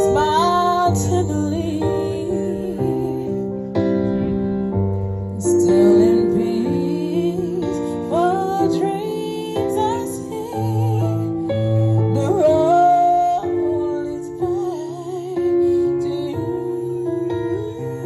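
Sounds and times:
woman singing into a microphone: 0.0s - 3.8s, 5.2s - 18.0s
bass line: 0.0s - 8.9s.

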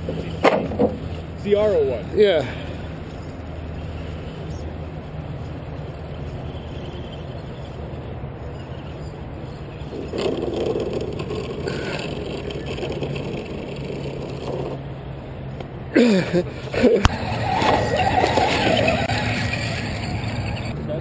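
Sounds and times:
toy truck electric motor and gears: 5.7s - 14.8s, 17.0s - 20.8s.

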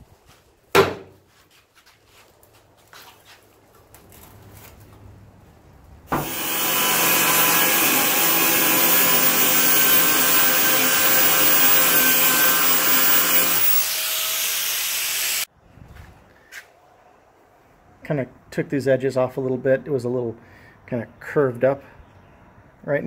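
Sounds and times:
angle grinder grinding metal: 6.1s - 15.5s.

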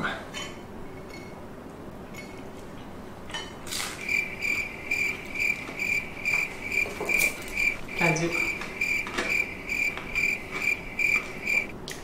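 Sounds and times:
cricket chirping: 3.9s - 11.7s.

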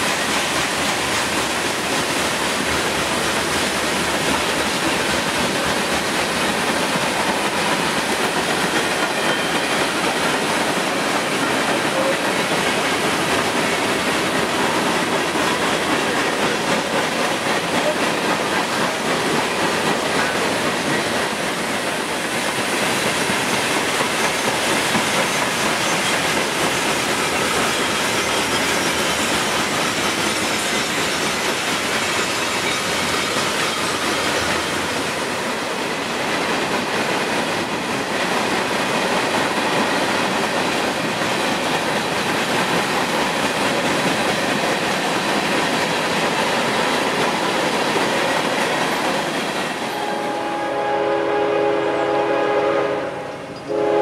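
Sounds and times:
steel wheels on rails: 0.0s - 54.0s
locomotive air horn: 49.9s - 54.0s.

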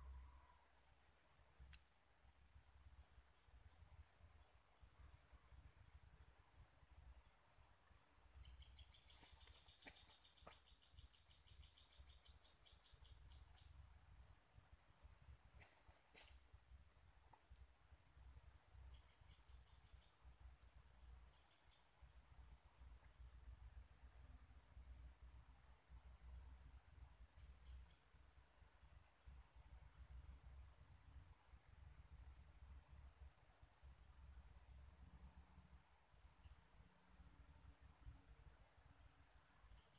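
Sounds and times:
high-pitched insect chorus: 0.0s - 39.9s
faint chirps: 8.3s - 14.0s.

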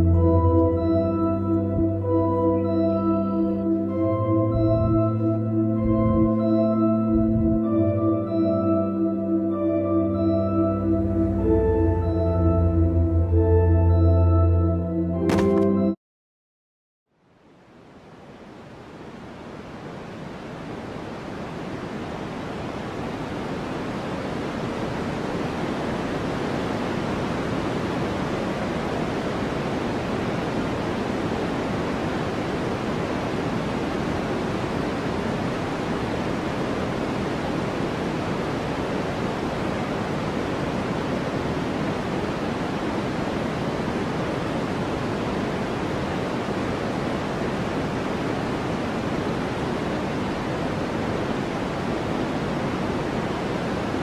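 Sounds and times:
steady rushing noise: 3.8s - 8.0s, 18.4s - 54.0s.

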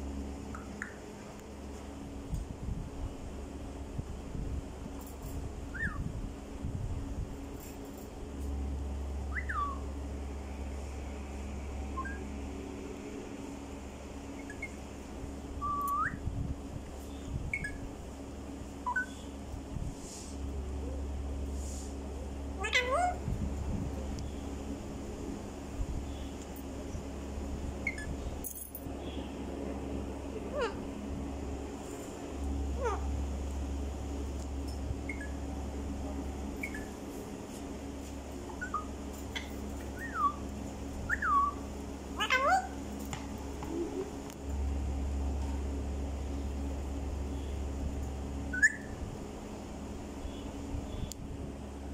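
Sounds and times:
parakeets chirping: 9.3s - 9.8s, 18.8s - 19.4s, 22.6s - 23.2s, 27.8s - 28.2s, 35.0s - 35.4s, 36.6s - 37.0s, 38.5s - 41.6s, 42.2s - 42.8s, 48.5s - 49.0s
parakeet rising whistle: 9.3s - 9.9s, 11.9s - 12.3s, 15.6s - 16.2s, 35.1s - 35.4s, 36.6s - 37.0s, 38.5s - 38.9s, 40.0s - 40.4s, 41.1s - 41.6s, 48.5s - 49.0s.

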